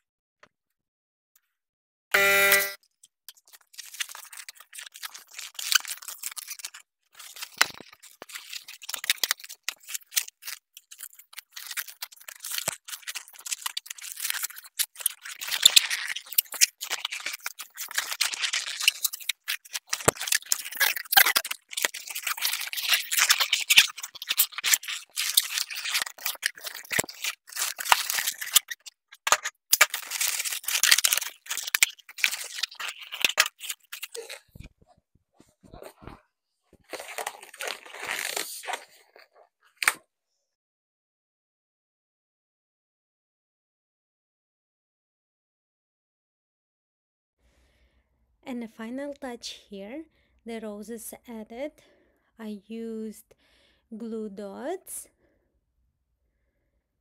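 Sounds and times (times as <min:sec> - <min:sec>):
balloons rustling and crinkling: 0:03.4 - 0:36.1, 0:36.7 - 0:39.4.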